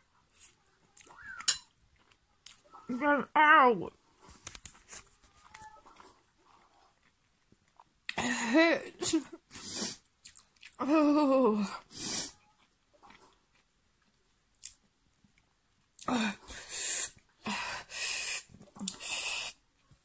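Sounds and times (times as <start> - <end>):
hissing breaths: 16.4 - 19.6.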